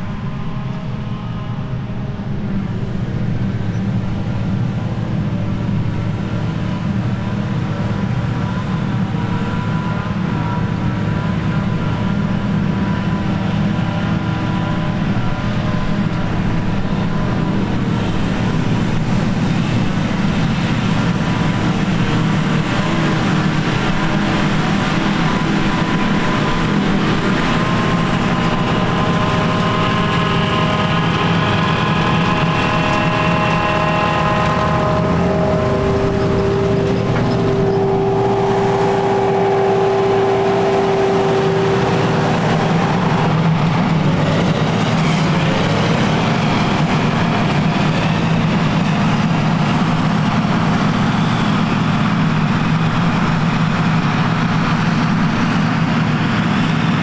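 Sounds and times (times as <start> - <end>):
forage harvester heavy drone: 0.0 - 57.0
machine whine changing pitch: 20.5 - 49.5.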